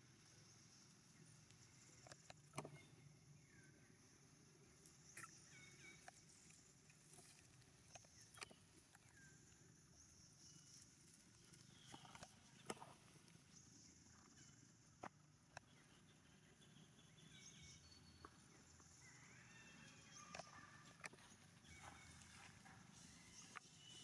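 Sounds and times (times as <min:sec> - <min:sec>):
faint clicks and crackles: 0:00.2 - 0:03.0, 0:10.4 - 0:15.8.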